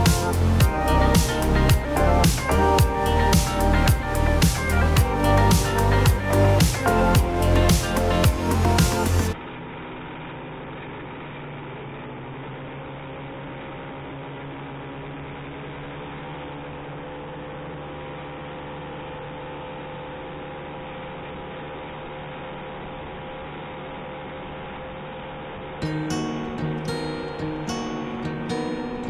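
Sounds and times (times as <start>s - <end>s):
two-stroke engine droning: 0.0s - 29.0s.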